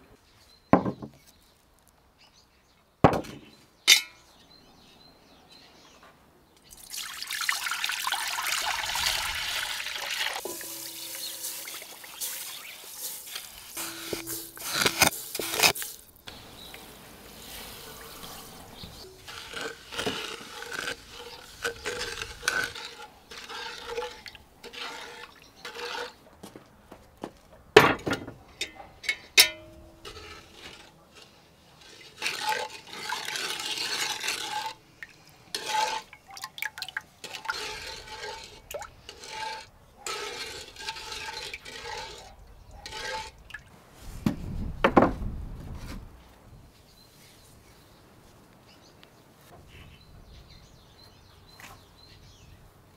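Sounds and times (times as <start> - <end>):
wooden frame knocking on a table: 0.8 - 1.2
sugar poured into a pot: 8.1 - 16.0
clinks and knocks at a pot: 10.4 - 11.9.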